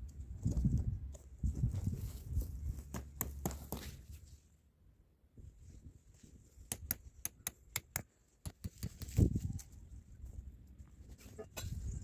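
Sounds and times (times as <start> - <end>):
stone tapping metal tent peg: 6.7 - 9.2.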